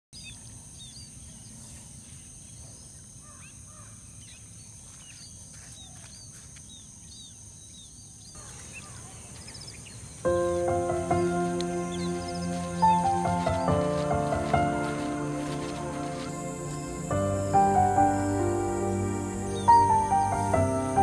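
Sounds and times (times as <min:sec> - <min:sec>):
small birds chirping: 0:00.1 - 0:21.0
music with held notes: 0:10.3 - 0:21.0.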